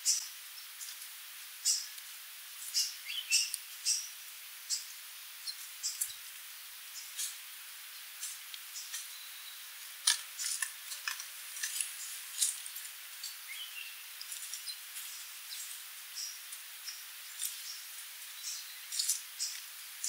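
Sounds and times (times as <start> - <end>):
faint steady hiss: 0.0 - 20.0
birds giving sharp call notes: 2.7 - 11.2, 13.2 - 20.0.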